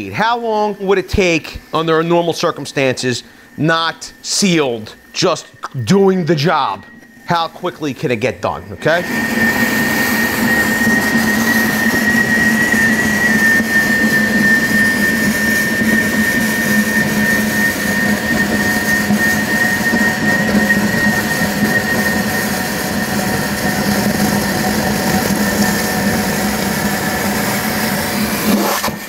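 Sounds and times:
wet vacuum whining: 0.0 - 29.0.

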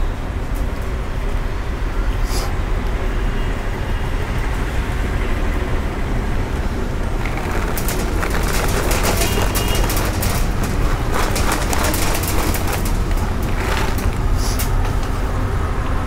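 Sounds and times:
low rumble of street traffic: 0.0 - 16.0
kibble clattering on steel: 7.1 - 15.2.

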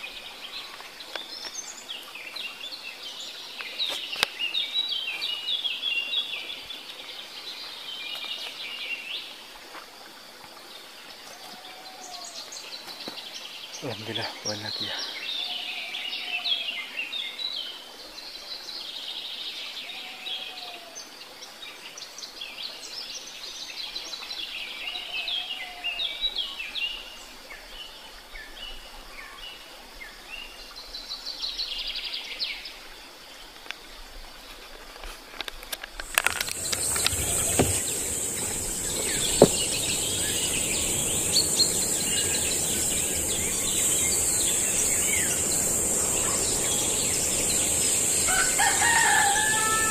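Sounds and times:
high-pitched insect buzz: 36.0 - 49.9
small birds chirping: 36.0 - 49.9.

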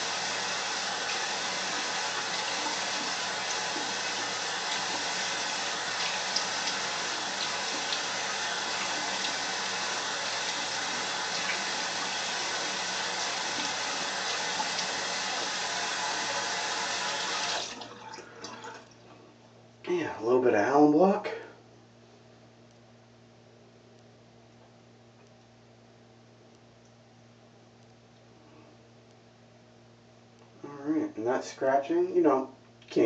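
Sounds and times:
sink tap running: 0.0 - 18.9.

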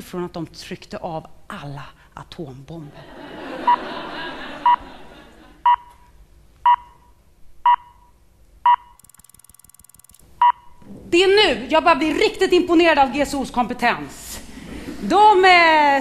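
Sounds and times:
short electronic beeps: 6.7 - 7.0, 7.7 - 8.1, 8.7 - 10.7.

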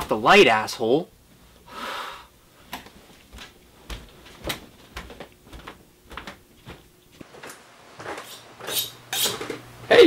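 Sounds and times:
footsteps on a wooden floor: 2.6 - 8.3.

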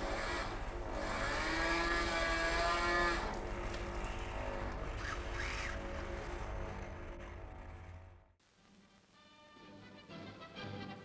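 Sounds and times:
robot arm drives whining: 0.0 - 8.2.

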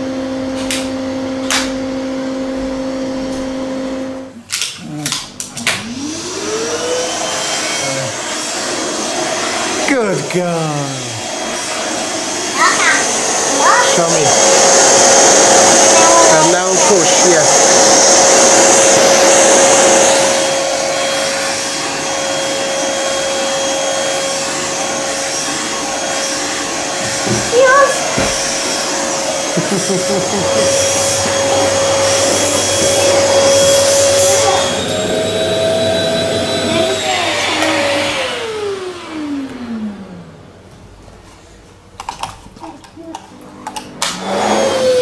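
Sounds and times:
vacuum motor whining: 0.0 - 41.2, 43.2 - 45.0
suction rushing through hose: 5.9 - 38.6.

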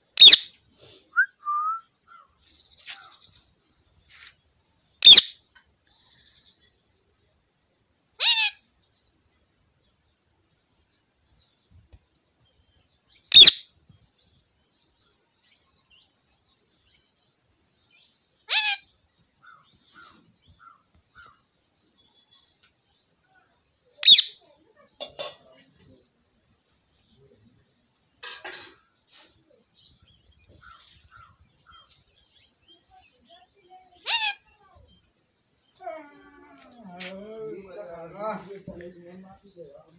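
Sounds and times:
faint bird chirping: 0.0 - 39.9
parakeet high-pitched calls: 0.2 - 0.6, 5.0 - 5.4, 8.2 - 8.6, 13.3 - 13.7, 18.5 - 18.9, 24.0 - 24.4, 34.0 - 34.6.

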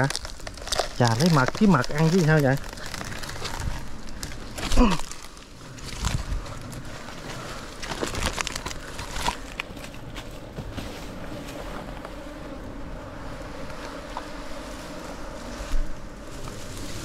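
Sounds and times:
sharp snaps and rustles: 0.0 - 12.2
bees buzzing: 0.0 - 17.0.

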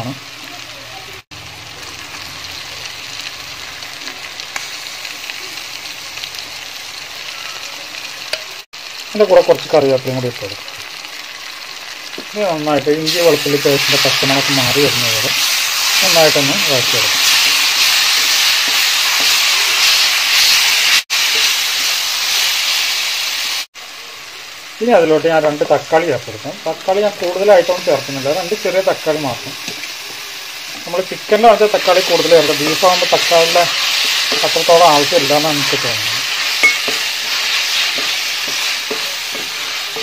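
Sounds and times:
onions sizzling in hot oil: 0.0 - 40.0.

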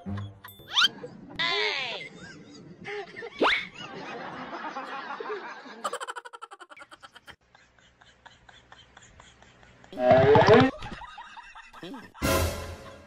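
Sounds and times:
background noise: 0.0 - 13.0
person snickering laugh: 5.8 - 7.4.

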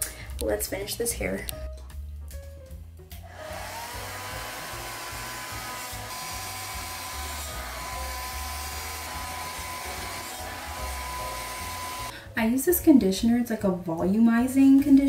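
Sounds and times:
background music with bass: 0.0 - 15.0
hair dryer blowing: 3.3 - 12.1.

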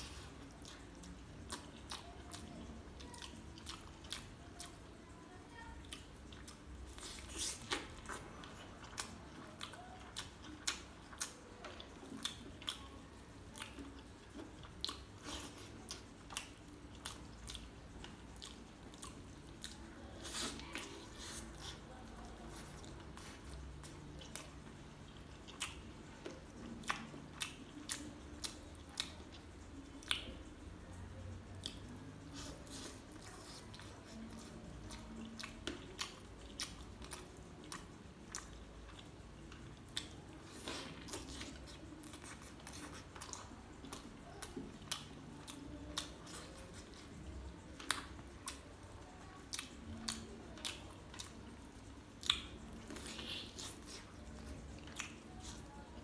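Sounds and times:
person chewing meat: 0.0 - 5.1, 5.8 - 56.0
mouth clicks and smacks: 13.5 - 30.7, 31.5 - 48.8, 49.4 - 56.0.

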